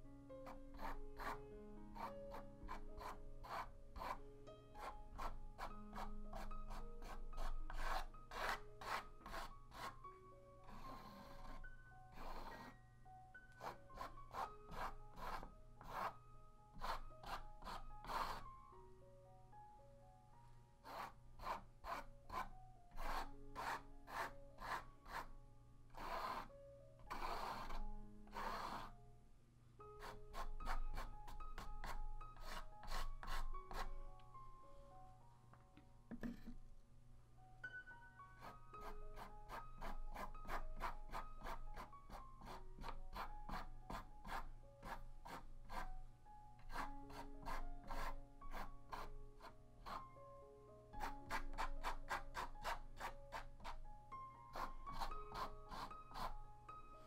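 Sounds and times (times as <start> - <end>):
gentle background music: 0.0 - 57.0
palette knife scraping paint: 0.4 - 4.2, 4.8 - 10.0, 10.6 - 12.8, 13.6 - 16.2, 16.8 - 18.4, 20.8 - 25.3, 25.9 - 26.5, 27.1 - 28.9, 30.0 - 34.0, 38.4 - 45.9, 46.6 - 50.0, 51.0 - 53.8, 54.5 - 56.4
paintbrush rubbing on wood: 13.6 - 16.1, 16.8 - 18.4, 54.6 - 56.4.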